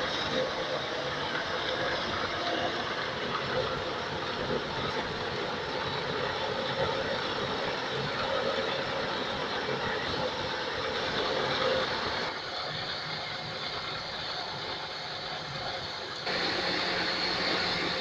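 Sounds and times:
threshing machine running: 16.3 - 18.0.

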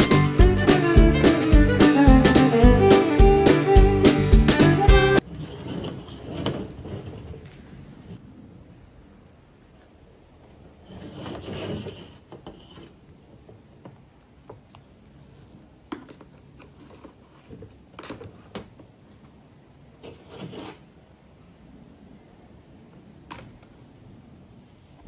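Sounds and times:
scraping rustle: 5.2 - 8.2, 10.5 - 19.3, 20.0 - 21.0.

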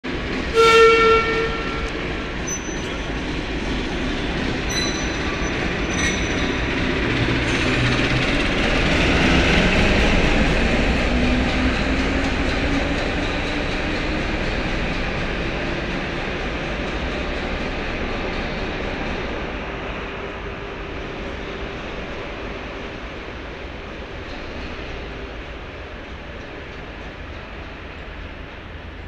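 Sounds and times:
train horn blast: 0.5 - 2.2
high-pitched wheel squeals: 2.4 - 3.2, 4.6 - 6.9.

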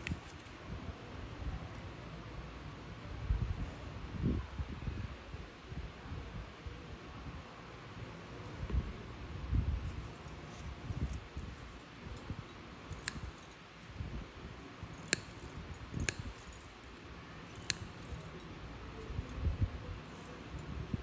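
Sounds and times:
toenail nippers clicking: 9.9 - 13.7, 14.8 - 19.4
gloved hands rustling: 14.6 - 19.4.

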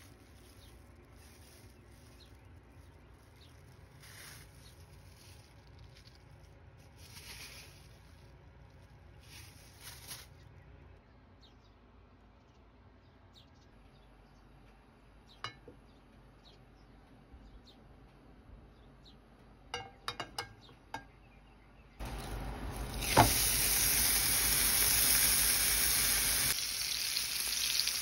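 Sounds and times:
faint rustle: 0.0 - 10.6
kitchenware clinking: 15.4 - 15.8, 19.7 - 21.2.

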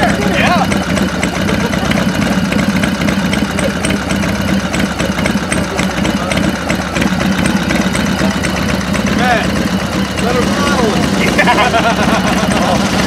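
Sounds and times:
motorcycle engine idling: 0.0 - 13.0.

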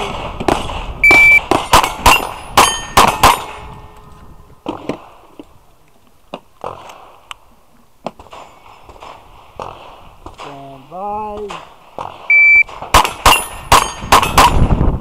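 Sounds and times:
pistol shots: 0.0 - 3.7, 11.4 - 14.8
shot timer beep: 1.0 - 1.5, 12.3 - 12.7
bullets ringing steel plate: 1.1 - 4.1, 13.0 - 14.6.

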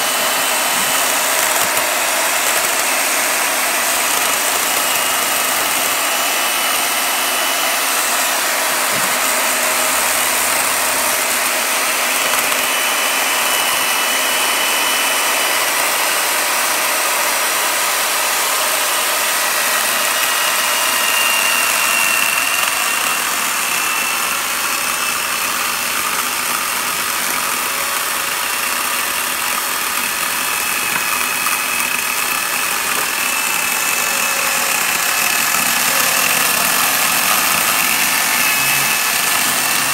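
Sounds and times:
chainsaw cutting wood: 0.0 - 39.9.

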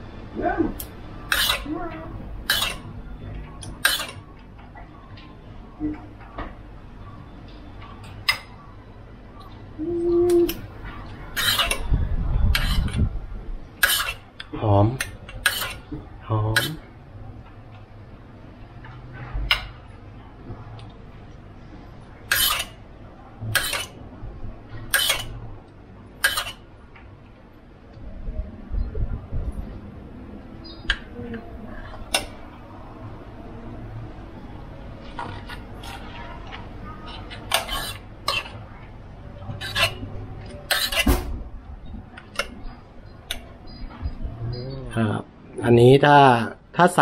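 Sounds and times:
metal spoon scraping cookware: 1.3 - 1.7, 2.5 - 2.9, 3.8 - 4.2, 11.3 - 11.9, 12.5 - 13.0, 13.8 - 14.2, 15.4 - 15.9, 22.3 - 22.8, 23.5 - 24.0, 24.9 - 25.4, 26.2 - 26.6, 37.1 - 38.6, 39.6 - 41.1.

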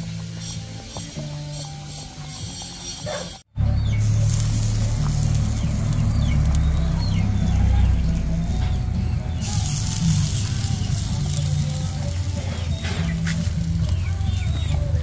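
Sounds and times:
gas burner rumble: 0.0 - 15.0.

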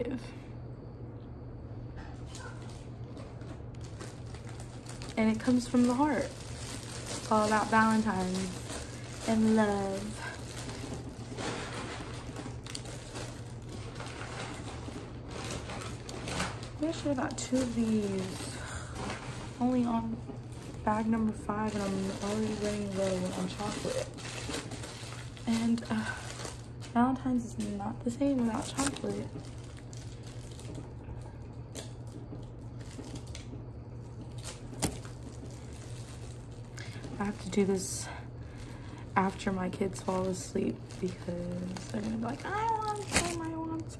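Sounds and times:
steady low hum: 0.0 - 43.9
candy wrappers crinkling: 2.3 - 43.9.

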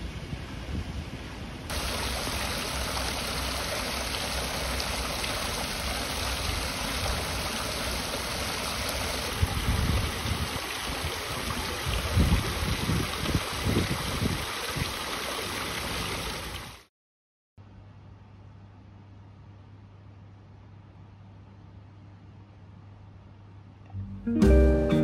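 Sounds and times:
water splashing into pool: 1.7 - 16.9.

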